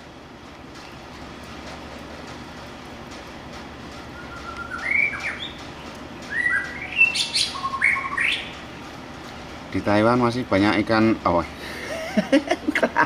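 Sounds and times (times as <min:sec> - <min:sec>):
bird singing whistled notes: 0:04.0 - 0:05.6, 0:06.3 - 0:08.5.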